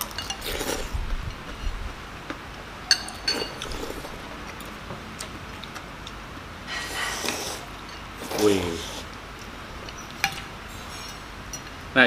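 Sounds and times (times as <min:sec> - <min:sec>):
cutlery clinking on bowls: 0:00.0 - 0:00.9, 0:02.8 - 0:04.2, 0:07.3 - 0:08.8, 0:09.4 - 0:11.8.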